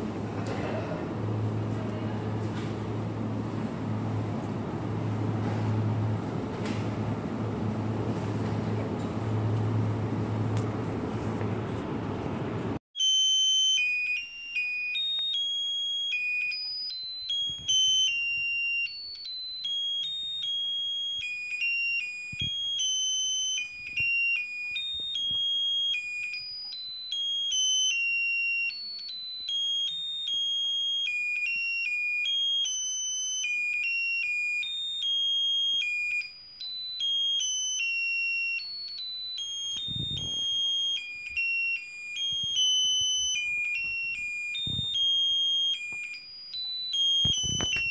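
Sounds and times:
tinny electronic beeping tune: 13.0 - 47.9.

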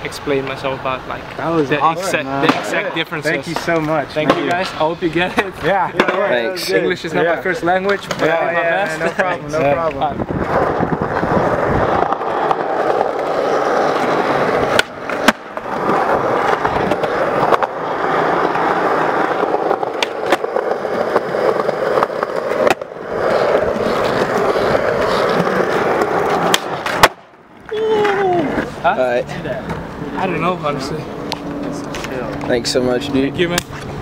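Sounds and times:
skateboard wheels rolling on concrete: 0.0 - 34.0
skateboard clacking: 2.4 - 6.5, 7.8 - 28.7.

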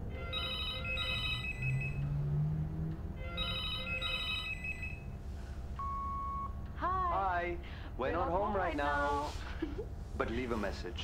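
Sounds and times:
telephone ringing: 0.2 - 2.0, 3.2 - 5.1.

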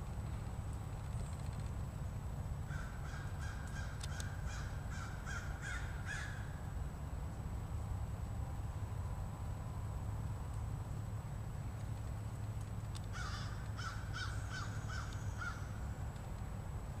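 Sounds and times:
crow cawing: 2.7 - 6.5, 13.1 - 15.8.

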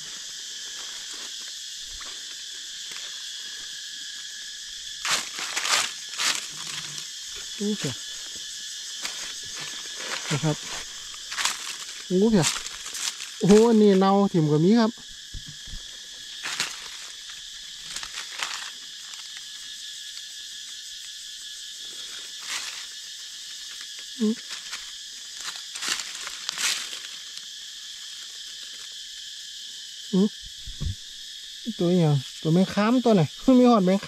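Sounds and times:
dry leaves rustling: 0.0 - 14.3, 15.2 - 19.7, 21.8 - 29.3
insects shrilling: 0.0 - 34.0.

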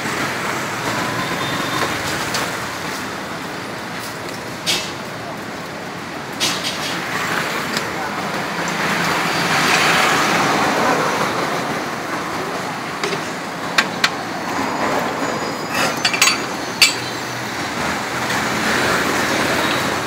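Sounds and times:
street traffic noise: 0.0 - 20.0
sharp clicks and clinks: 13.0 - 14.3, 15.6 - 17.5.

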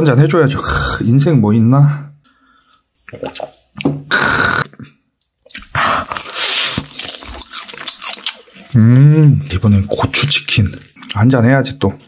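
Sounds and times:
biting and chewing chicken: 5.4 - 8.7.

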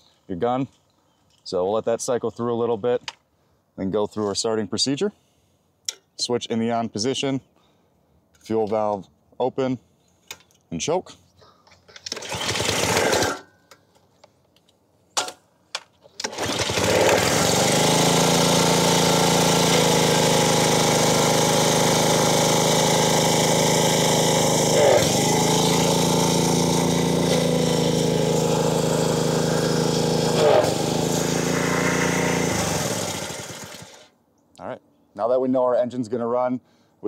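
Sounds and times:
small engine running: 12.1 - 13.4, 16.2 - 34.1.

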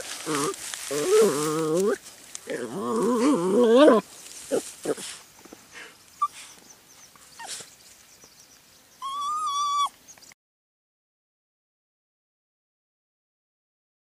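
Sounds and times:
dog whining: 0.2 - 5.0, 7.3 - 7.7, 9.0 - 10.0.

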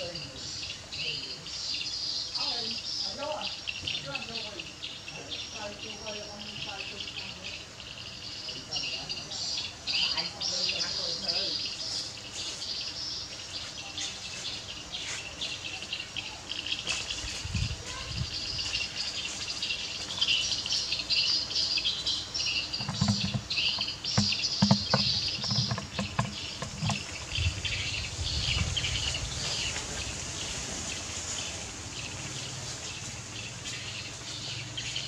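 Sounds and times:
birds chirping: 0.0 - 35.0
insects chirping: 0.0 - 35.0
light rustling and clicks: 22.7 - 27.3
soft low thumps: 22.7 - 27.8.

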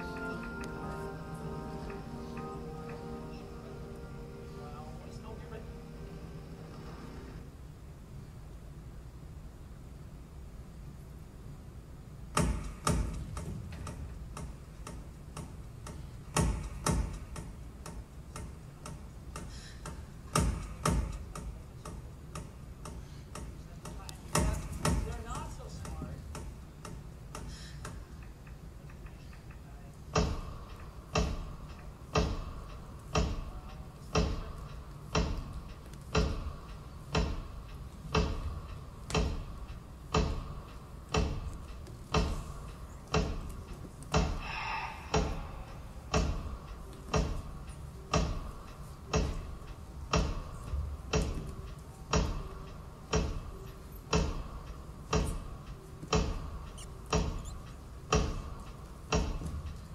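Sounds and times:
clock ticking: 12.4 - 59.9.

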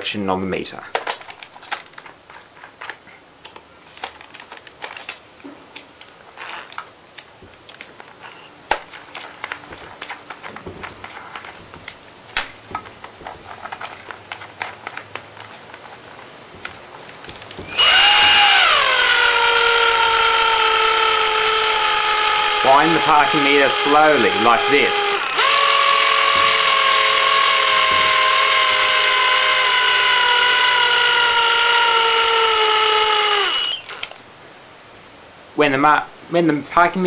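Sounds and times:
handling clicks and knocks: 0.9 - 18.4
cordless drill whining: 17.5 - 34.2.

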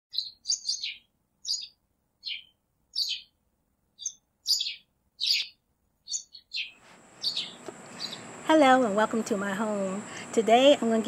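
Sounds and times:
bird chirping: 0.1 - 8.4.

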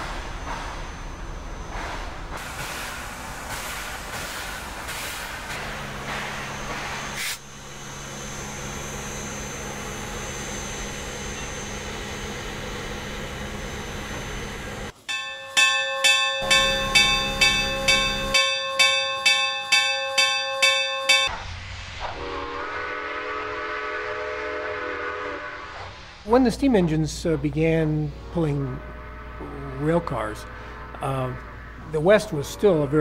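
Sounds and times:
steam locomotive venting steam: 0.0 - 33.0
rhythmic exhaust chuffs: 5.7 - 21.3
locomotive chime whistle: 15.0 - 21.3.

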